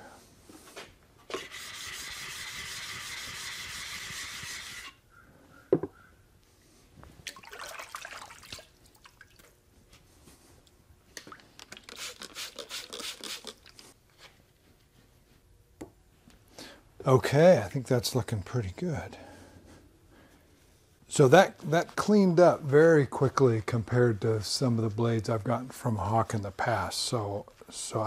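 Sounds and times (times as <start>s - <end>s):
rubbing and wiping: 1.3s - 5.0s, 11.9s - 15.5s.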